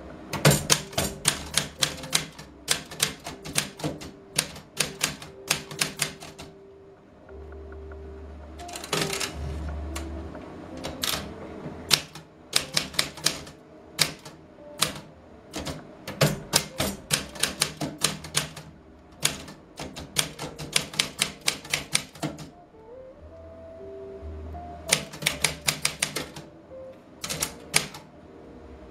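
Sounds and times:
typewriter carriage return: 0:00.3 - 0:06.5, 0:08.6 - 0:09.6, 0:10.8 - 0:11.3, 0:11.9 - 0:22.5, 0:24.9 - 0:26.5, 0:27.2 - 0:28.1
typewriter key strikes: 0:00.3 - 0:06.5, 0:08.6 - 0:09.4, 0:10.8 - 0:11.3, 0:11.9 - 0:22.5, 0:24.9 - 0:26.4, 0:27.2 - 0:28.1.

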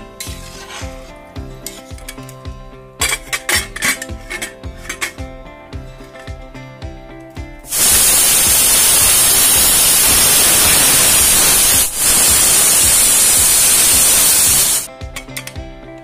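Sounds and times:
pressure cooker steam hissing: 0:07.7 - 0:14.9.

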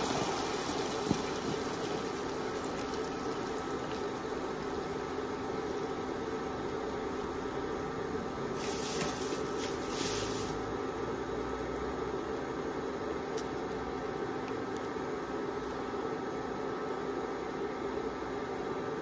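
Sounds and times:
coconut milk heating: 0:00.0 - 0:19.0
kitchen fan humming: 0:00.0 - 0:19.0
burst of hissing: 0:08.6 - 0:10.6.

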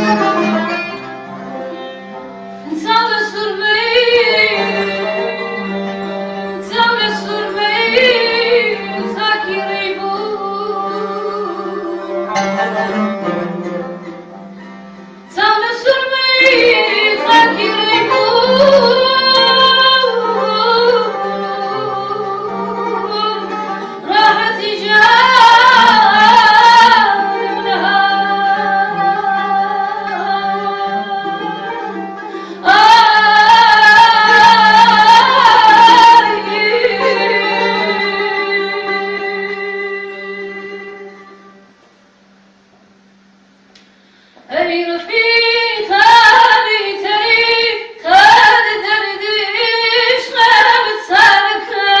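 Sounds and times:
plucked oud and lute: 0:00.0 - 0:41.3
woman singing: 0:02.7 - 0:12.2, 0:15.3 - 0:41.5, 0:44.5 - 0:52.0.

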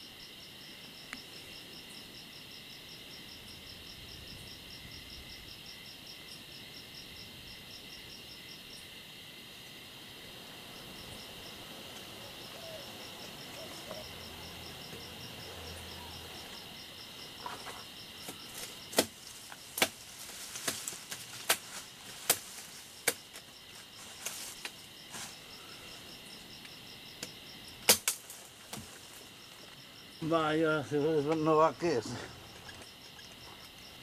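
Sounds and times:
insect chirping: 0:00.0 - 0:34.0
wooden branches snapping: 0:18.2 - 0:23.5, 0:27.8 - 0:29.2.

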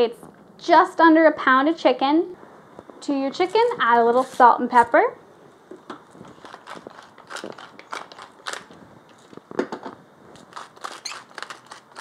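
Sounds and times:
grinder crunching clicks: 0:06.4 - 0:09.4, 0:10.4 - 0:12.0.

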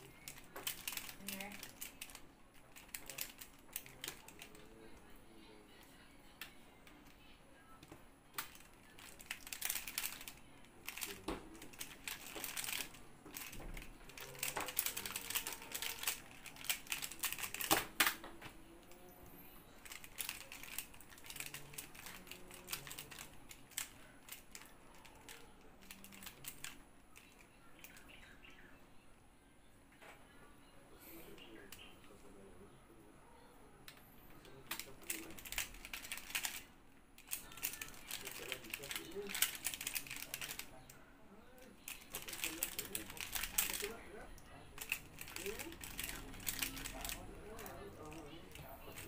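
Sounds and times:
puzzle layers clicking: 0:08.4 - 0:18.1, 0:19.8 - 0:24.7, 0:44.8 - 0:49.0.

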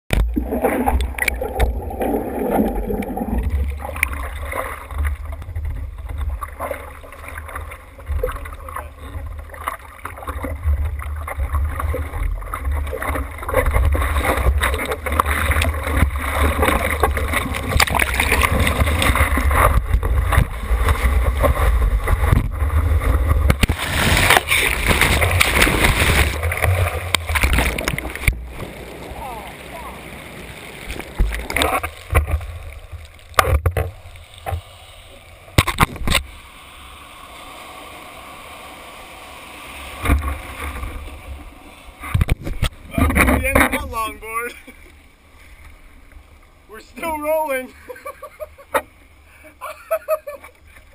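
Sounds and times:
water sloshing and splashing: 0:00.1 - 0:36.4, 0:37.2 - 0:47.0
whitewater washing over: 0:00.2 - 0:34.6.

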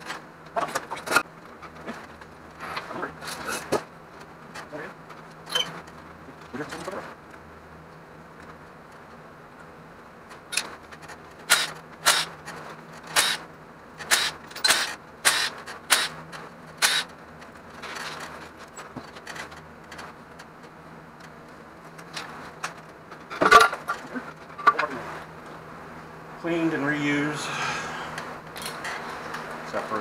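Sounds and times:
hand ratchet clicking: 0:11.5 - 0:12.3, 0:13.1 - 0:13.4, 0:14.0 - 0:16.2, 0:16.8 - 0:17.1.

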